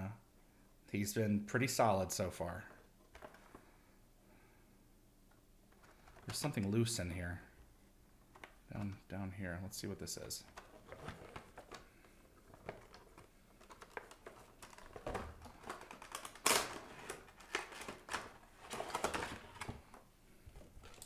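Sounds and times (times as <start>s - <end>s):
cardboard and plastic being handled: 3.0s - 3.7s, 5.7s - 7.0s, 10.0s - 21.0s
sharp plastic crack: 10.4s - 19.8s.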